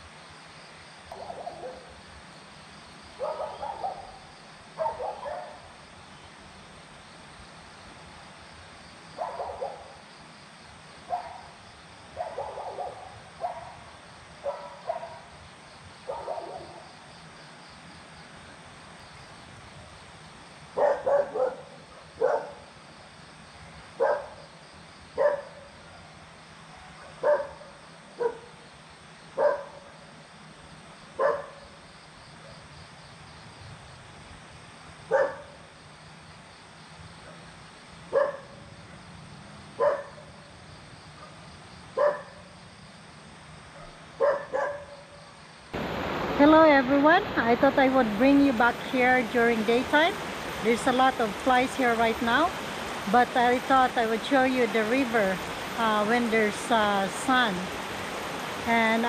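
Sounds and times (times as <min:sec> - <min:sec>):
dog barking: 0:01.1 - 0:01.9, 0:03.2 - 0:04.2, 0:04.8 - 0:05.6, 0:09.2 - 0:09.9, 0:11.1 - 0:11.4, 0:12.2 - 0:13.8, 0:14.4 - 0:15.3, 0:16.1 - 0:16.8, 0:20.8 - 0:22.6, 0:24.0 - 0:24.4, 0:25.2 - 0:25.7, 0:27.0 - 0:28.5, 0:29.4 - 0:29.9, 0:31.2 - 0:31.6, 0:35.1 - 0:35.6, 0:38.1 - 0:38.6, 0:39.8 - 0:40.3, 0:42.0 - 0:42.5, 0:43.8 - 0:45.0.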